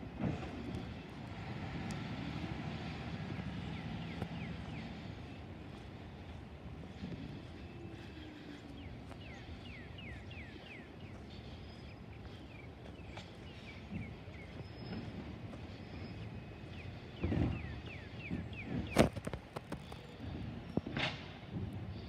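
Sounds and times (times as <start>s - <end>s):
distant garbage truck rumbling: 0.0s - 22.0s
bird chirping: 7.6s - 19.0s.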